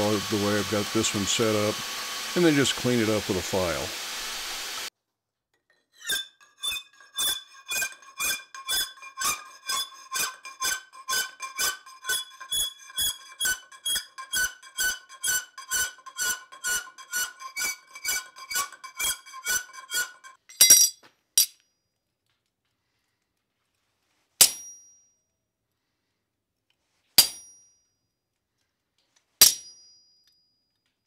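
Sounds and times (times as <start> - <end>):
file strokes on steel: 0.0 - 4.9, 6.0 - 20.4
metal bar ringing: 29.4 - 30.2.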